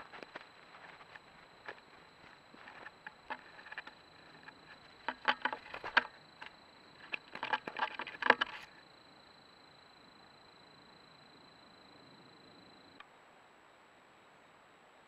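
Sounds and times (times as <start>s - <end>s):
animal footsteps in dry leaves: 0.0s - 6.1s
faint electronic whine: 0.0s - 15.0s.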